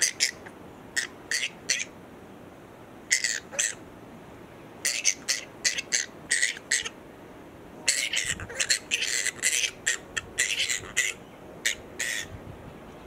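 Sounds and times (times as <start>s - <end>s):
harsh animal squawks: 0.0s - 2.0s, 3.1s - 3.8s, 4.8s - 7.0s, 7.8s - 12.3s.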